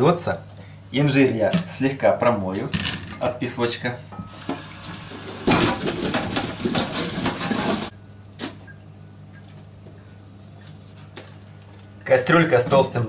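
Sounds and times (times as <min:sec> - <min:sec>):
tap water running over colander: 0:04.2 - 0:07.9.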